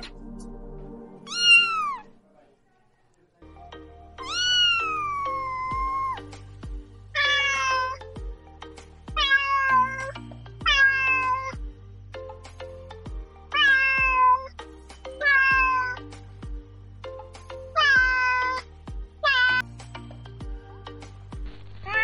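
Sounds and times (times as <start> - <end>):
background music with a beat: 0.0 - 1.8, 3.6 - 22.0
cat meowing: 1.3 - 2.2, 4.2 - 6.3, 7.1 - 8.1, 9.2 - 11.6, 13.5 - 14.6, 15.2 - 16.0, 17.7 - 19.7, 21.7 - 22.0.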